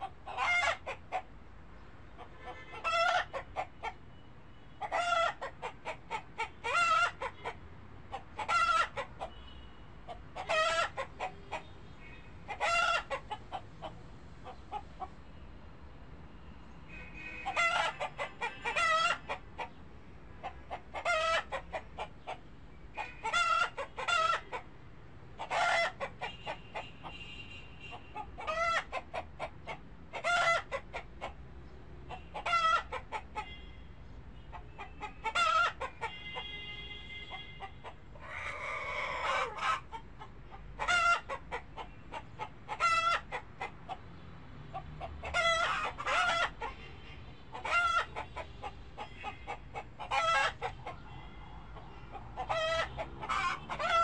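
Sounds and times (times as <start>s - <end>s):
harsh chicken call: 0.0s - 1.3s, 2.2s - 4.0s, 4.8s - 9.3s, 10.1s - 11.6s, 12.5s - 13.6s, 17.0s - 19.7s, 20.4s - 22.1s, 23.0s - 24.7s, 25.4s - 27.2s, 27.9s - 31.4s, 32.1s - 33.6s, 34.5s - 40.0s, 40.8s - 43.9s, 44.7s - 54.0s
chickens clucking: 0.0s - 1.4s, 2.1s - 4.0s, 4.8s - 9.4s, 10.0s - 11.8s, 12.5s - 15.2s, 17.4s - 19.8s, 20.4s - 24.7s, 25.4s - 27.2s, 27.9s - 33.6s, 34.4s - 36.5s, 37.3s - 54.0s.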